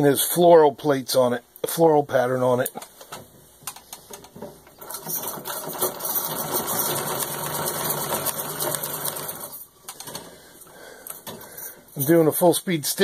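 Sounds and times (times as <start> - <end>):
sewing machine clattering: 4.3 - 10.3.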